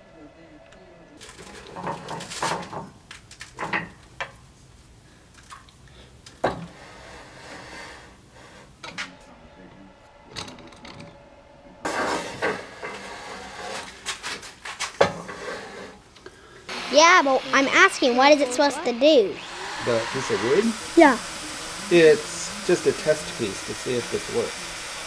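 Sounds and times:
metal clanks and knocks: 0:01.2 - 0:04.4, 0:06.4 - 0:06.8.

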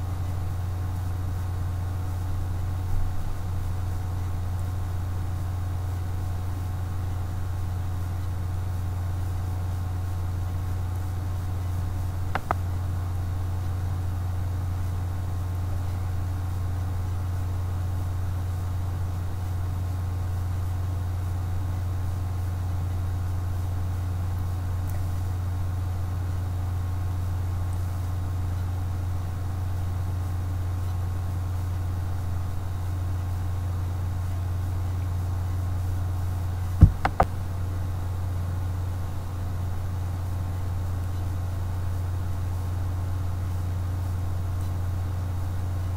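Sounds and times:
steady low hum: 0:00.0 - 0:45.9.

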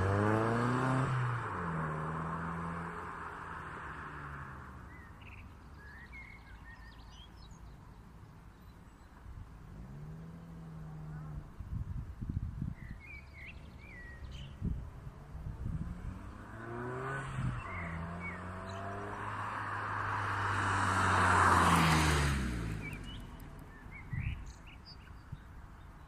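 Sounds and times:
car driving past: 0:15.2 - 0:24.6.

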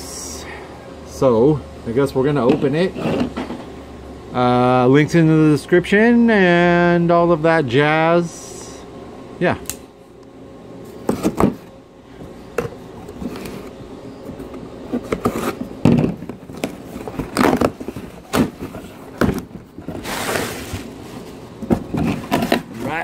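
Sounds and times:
cardboard scraping: 0:02.7 - 0:03.6, 0:10.9 - 0:11.6, 0:12.6 - 0:13.8, 0:14.4 - 0:23.0.

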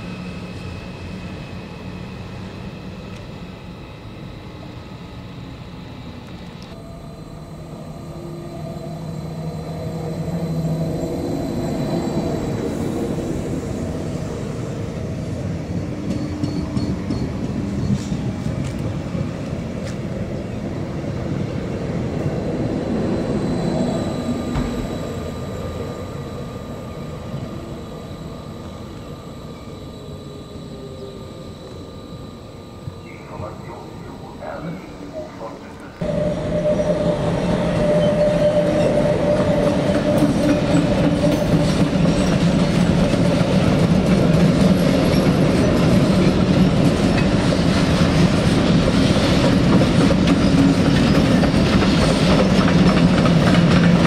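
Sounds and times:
electric train passing: 0:00.0 - 0:54.0
train wheels on rails: 0:09.3 - 0:31.1, 0:33.3 - 0:54.0.

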